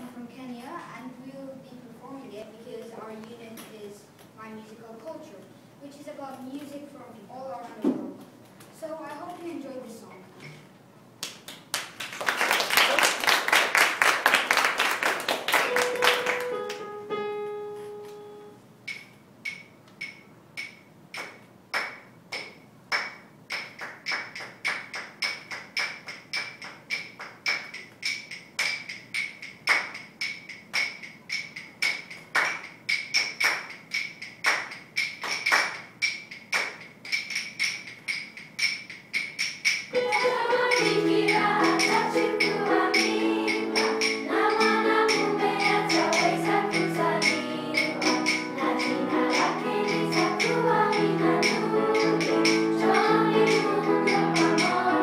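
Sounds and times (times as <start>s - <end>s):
piano notes: 15.5s - 18.7s, 39.9s - 55.0s
rapid rattling shaker: 23.6s - 55.0s.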